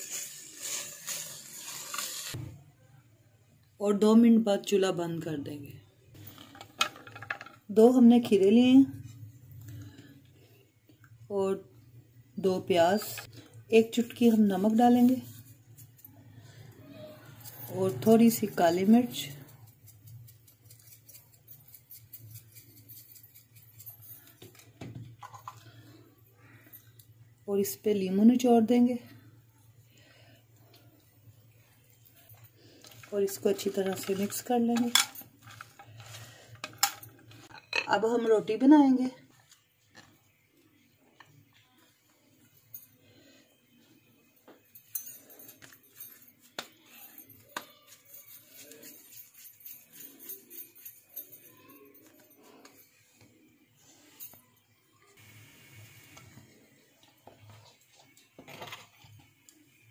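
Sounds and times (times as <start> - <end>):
bangles jingling and clicking: 17.3 - 25.6, 44.6 - 53.0.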